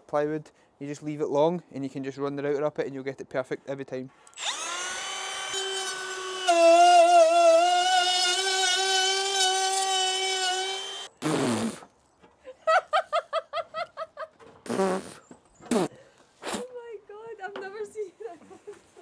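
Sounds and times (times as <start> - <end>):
router whining and cutting wood: 4.3 - 11.1.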